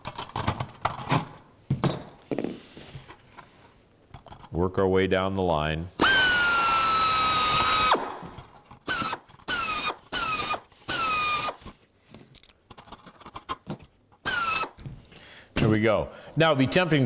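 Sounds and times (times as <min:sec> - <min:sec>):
pneumatic drill drilling metal: 0:06.0 - 0:11.6, 0:14.2 - 0:14.8.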